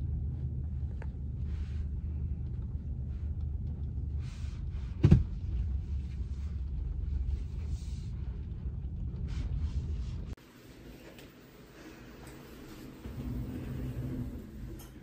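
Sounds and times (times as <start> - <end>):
road noise inside car: 0.0 - 10.4.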